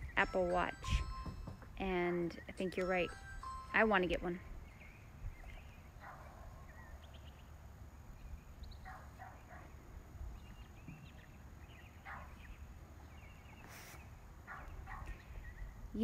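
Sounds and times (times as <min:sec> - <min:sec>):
birds chirping: 0:00.0 - 0:16.0
dog barking: 0:06.0 - 0:06.5, 0:08.8 - 0:09.7, 0:12.0 - 0:12.4, 0:14.5 - 0:15.2.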